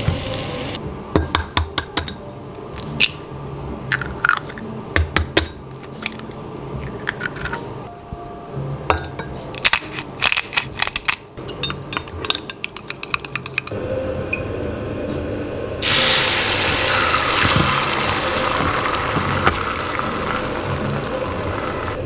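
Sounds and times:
rapid clicking at a bowl: 0:12.0 - 0:13.8
egg sizzling in hot pan: 0:15.8 - 0:22.0.

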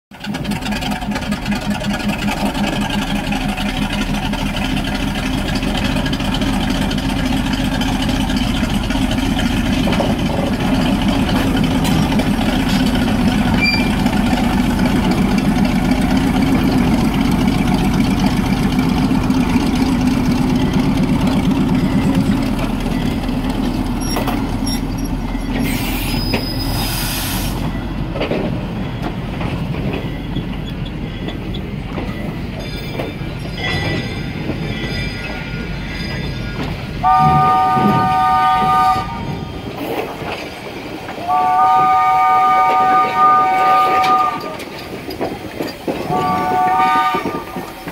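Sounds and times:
coach rolling on rails: 0:00.1 - 0:47.9
diesel locomotive engine drone: 0:00.1 - 0:47.9
sharp hiss of air: 0:25.7 - 0:27.6.

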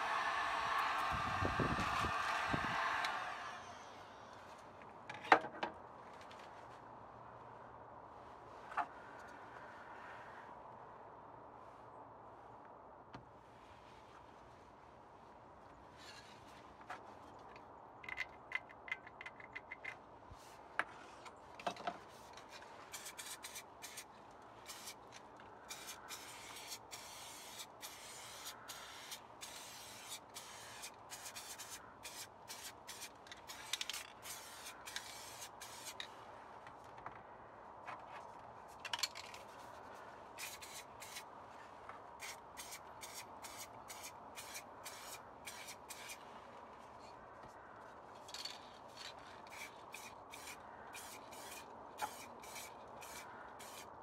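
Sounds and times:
spray paint can hissing: 0:22.9 - 0:24.0, 0:24.7 - 0:25.0, 0:25.7 - 0:36.0, 0:40.4 - 0:41.2, 0:42.2 - 0:46.2, 0:49.5 - 0:53.9
spray can rattling as shaken: 0:40.4 - 0:41.2.

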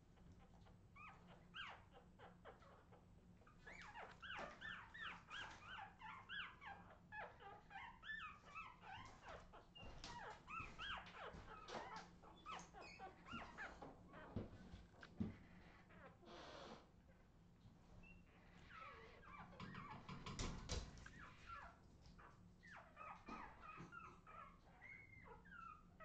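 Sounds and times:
puppies squeaking and whimpering: 0:00.1 - 0:14.4, 0:18.0 - 0:26.0.

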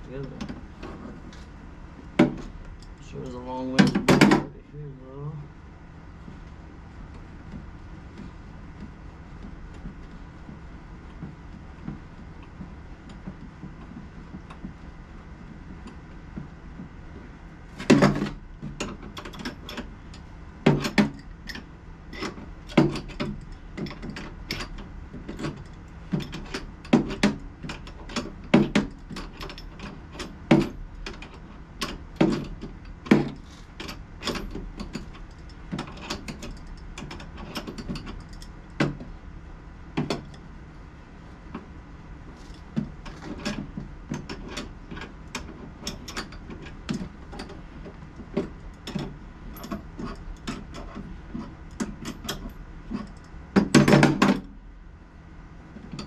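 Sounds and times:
tools and metal hardware clicking: 0:17.8 - 0:39.0, 0:42.4 - 0:54.5.

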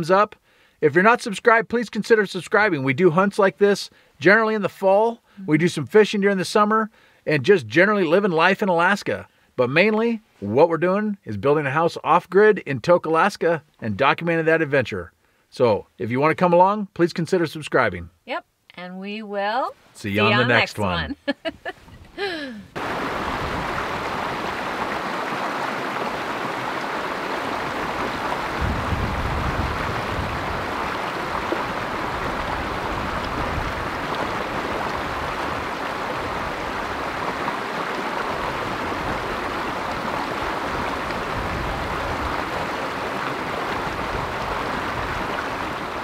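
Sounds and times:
creek splashing over stones: 0:22.8 - 0:46.0.

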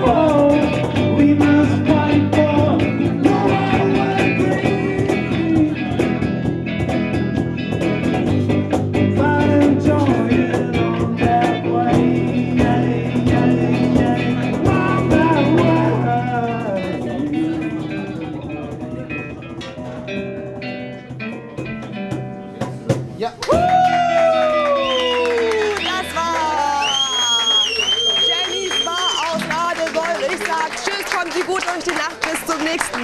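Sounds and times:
man singing into a microphone: 0:00.0 - 0:06.2, 0:09.0 - 0:18.7
steady percussion beat: 0:00.0 - 0:24.3
electric bass: 0:00.0 - 0:28.3
acoustic guitar: 0:00.0 - 0:33.0.

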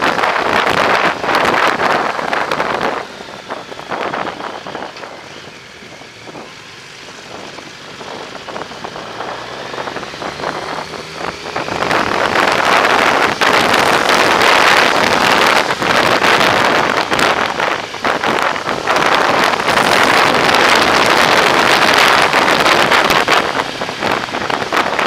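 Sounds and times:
motorcycle engine running: 0:00.0 - 0:25.0
wind buffeting microphone: 0:00.0 - 0:25.0.

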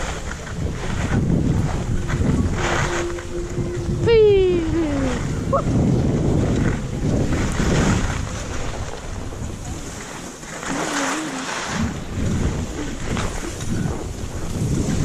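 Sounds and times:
skis scraping over snow: 0:00.0 - 0:03.8, 0:05.8 - 0:15.0
wind buffeting microphone: 0:00.0 - 0:15.0
short wavering tone: 0:01.7 - 0:08.6.

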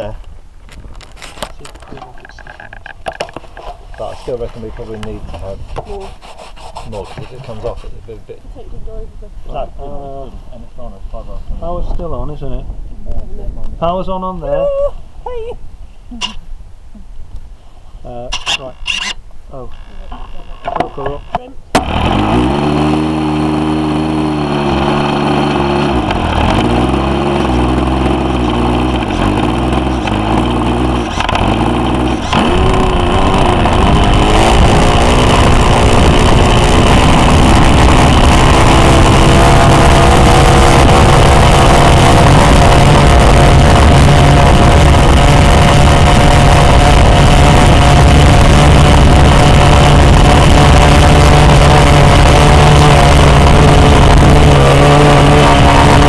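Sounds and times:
model aeroplane engine running: 0:21.8 - 0:56.0.

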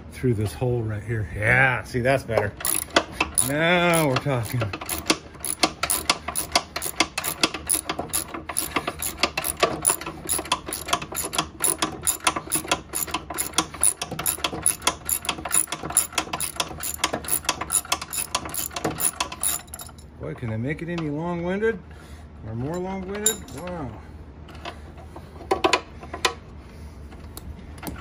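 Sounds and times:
socket ratchet clicking: 0:02.6 - 0:19.9.

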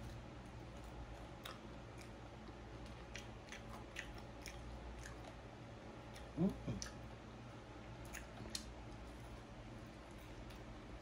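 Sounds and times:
wet chewing: 0:00.0 - 0:07.1, 0:08.0 - 0:09.3
small mouth clicks: 0:08.0 - 0:08.8.

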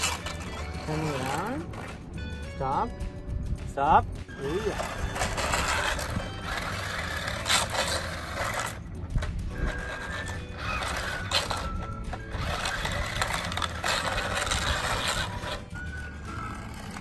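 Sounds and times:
toy car electric motors: 0:00.0 - 0:02.0, 0:04.3 - 0:17.0
tires scrubbing on concrete: 0:00.0 - 0:02.2, 0:04.3 - 0:17.0
motor whines: 0:04.7 - 0:08.8, 0:09.5 - 0:17.0.

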